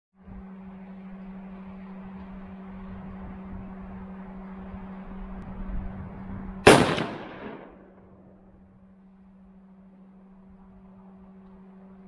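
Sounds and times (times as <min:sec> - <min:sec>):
low hum: 0:00.2 - 0:12.0
gunshot: 0:06.7 - 0:08.0.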